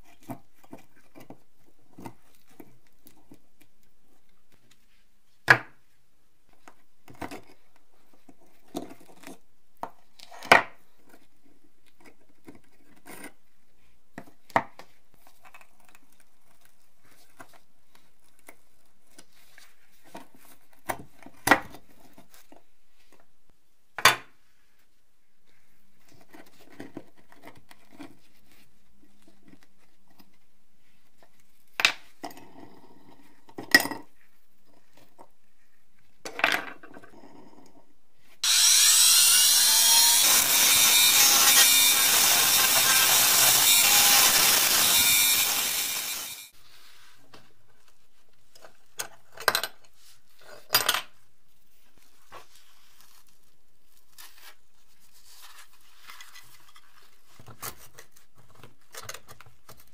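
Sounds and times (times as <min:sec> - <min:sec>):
rotary tool grinding metal: 0:38.4 - 0:46.5.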